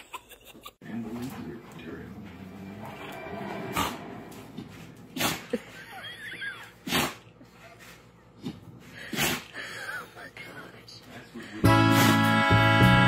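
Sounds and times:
dog sneezing: 5.1 - 5.6, 6.8 - 7.3, 9.0 - 9.5.

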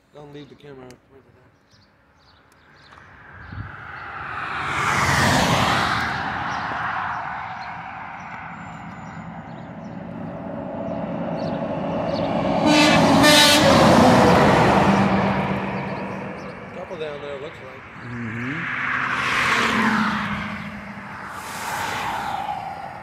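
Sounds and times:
trucks passing on highway: 2.4 - 23.0
truck air horn blast: 12.5 - 16.0.

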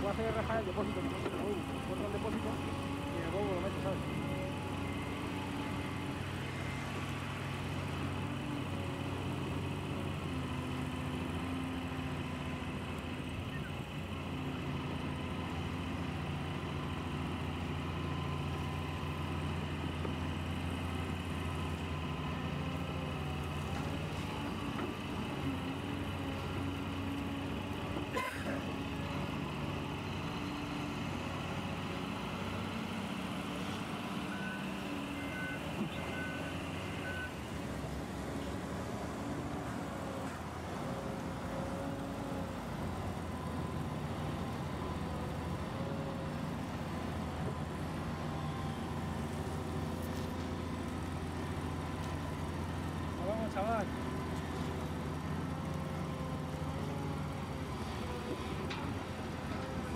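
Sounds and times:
model truck engine drone: 0.0 - 59.9
reversing beeper: 34.2 - 37.4.

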